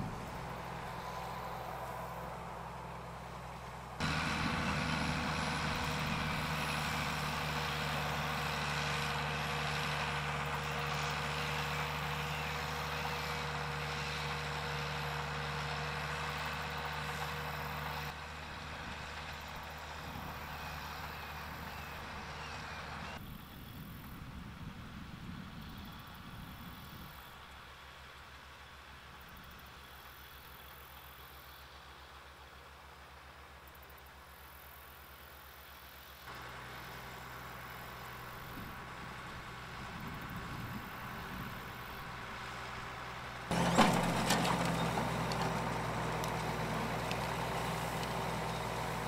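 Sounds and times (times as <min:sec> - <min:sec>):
harvesting machinery humming: 0:00.0 - 0:23.6, 0:36.2 - 0:49.0
tractor engines running: 0:00.0 - 0:49.0.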